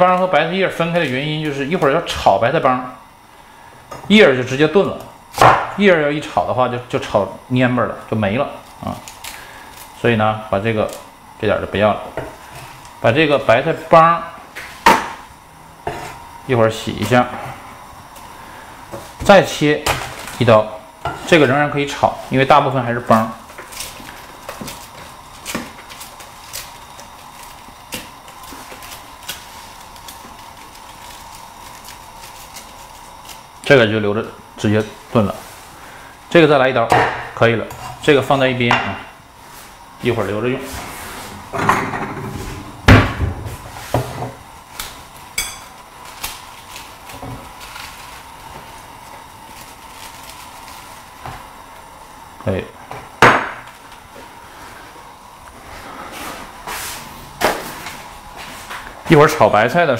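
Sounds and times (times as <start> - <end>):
faint high whine: 0.0 - 26.8.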